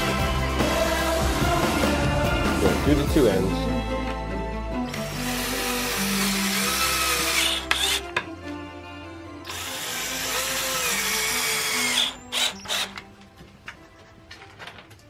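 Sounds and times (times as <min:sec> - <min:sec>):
cordless drill driving screws: 0:04.9 - 0:08.2, 0:09.4 - 0:13.0.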